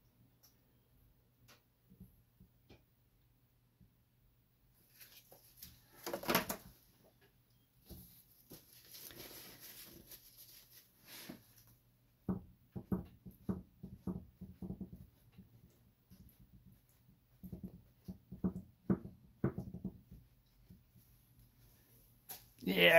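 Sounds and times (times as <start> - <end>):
cloth rustle: 4.8 - 6.3, 7.8 - 11.8
cloth rubbing hiss: 8.0 - 11.8.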